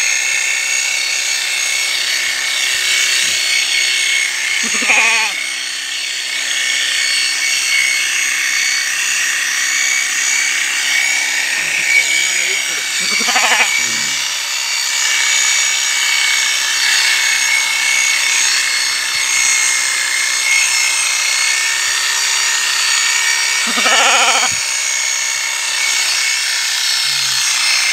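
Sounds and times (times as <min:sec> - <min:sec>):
electric shearing machine whining: 0:00.0 - 0:27.9
short calls: 0:04.6 - 0:05.4, 0:11.8 - 0:14.2, 0:23.7 - 0:24.6.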